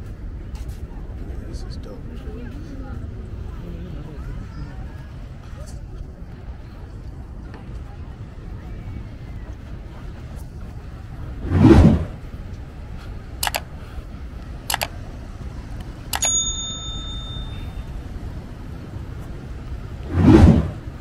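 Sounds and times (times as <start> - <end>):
city background noise: 0.0 - 21.0
sharp clicks: 13.4 - 13.8, 14.7 - 15.0, 15.8 - 16.4
short metallic ding: 16.2 - 17.8.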